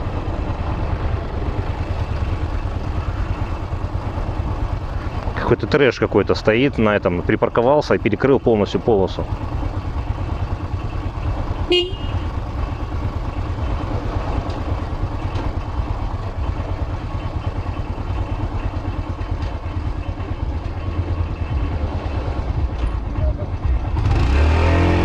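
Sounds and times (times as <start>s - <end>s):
motorcycle engine running: 0.0s - 25.0s
short horn toot: 11.7s - 12.2s.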